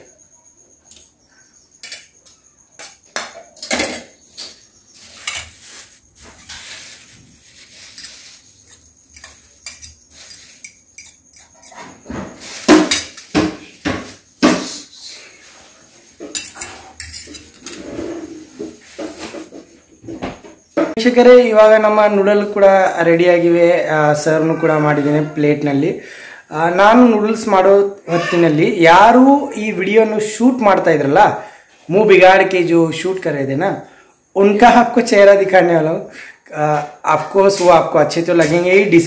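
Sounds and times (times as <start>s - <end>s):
cutlery clinking on steel plates: 1.8s - 2.2s, 2.8s - 5.7s, 7.7s - 14.1s, 16.2s - 18.1s, 37.5s - 38.9s.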